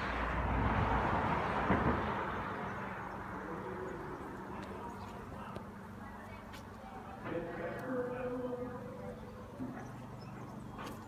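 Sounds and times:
vehicle passing: 0.0s - 6.1s.

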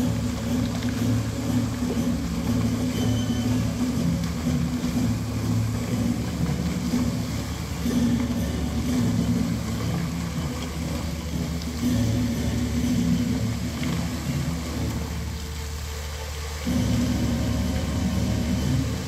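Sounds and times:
low sustained shifting tones: 0.0s - 19.0s
pumps rumbling: 0.0s - 19.0s
rushing water jets: 0.0s - 19.0s.

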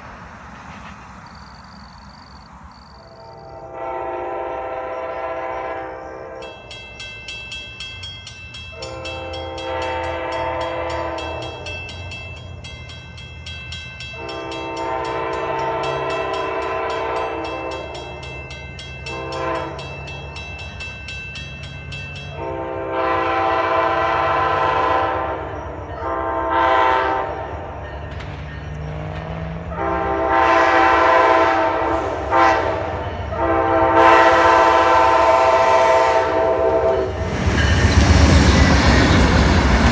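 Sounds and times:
low train rumble: 0.0s - 39.9s
train horn blasts: 3.0s - 6.7s, 8.7s - 12.3s, 14.0s - 20.3s, 22.2s - 27.8s, 28.8s - 37.4s.

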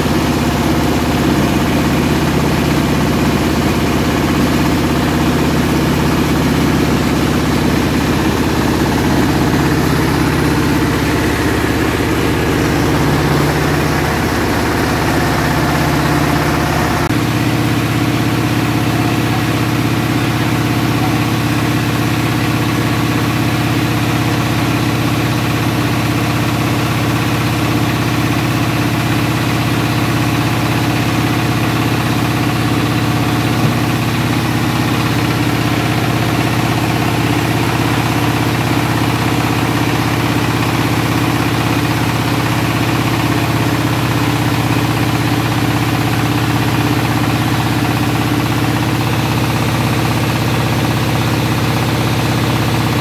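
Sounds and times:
rice milling machine drone: 0.0s - 53.0s.

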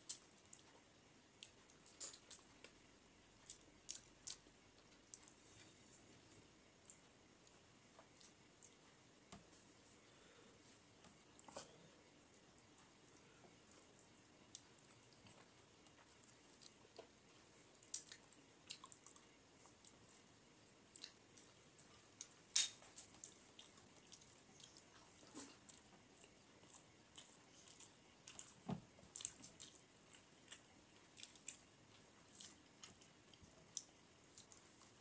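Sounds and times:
chewing and mouth smacks: 0.0s - 2.8s, 3.4s - 5.4s, 6.8s - 8.8s, 11.2s - 20.3s, 20.9s - 35.0s.

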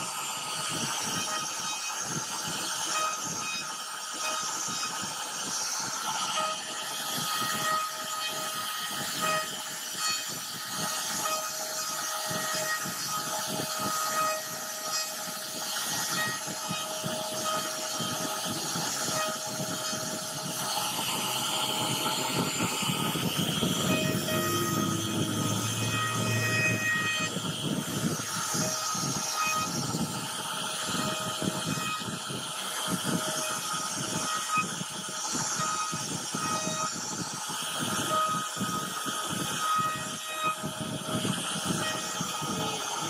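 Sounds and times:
router spindle whine: 0.0s - 43.0s
bit cutting through wood: 0.4s - 32.2s.

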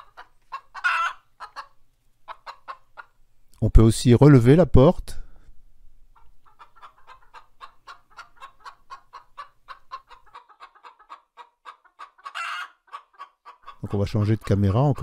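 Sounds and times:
hens clucking: 0.0s - 3.2s, 6.1s - 15.0s.

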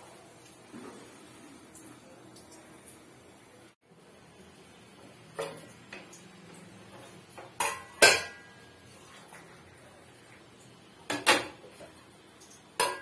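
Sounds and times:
metal pots and lids clanking: 5.4s - 6.2s, 6.9s - 8.6s, 11.1s - 11.9s, 12.8s - 13.0s.

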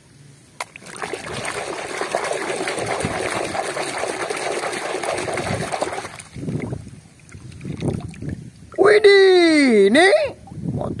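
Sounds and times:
small water splashes: 0.6s - 8.4s
water churning and sloshing: 0.6s - 8.5s.

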